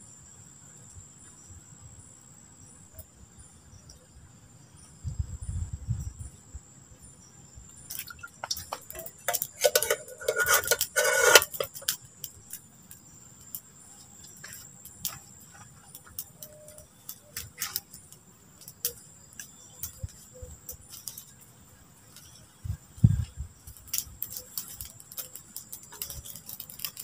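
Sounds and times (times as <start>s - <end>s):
crickets droning: 0.0s - 27.0s
metal pot and lid clanking: 8.4s - 11.9s.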